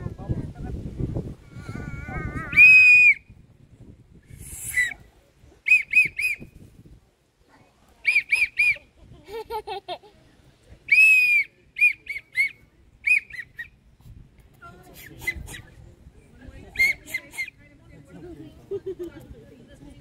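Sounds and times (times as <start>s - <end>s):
toy whistle toots: 2.5s - 3.2s.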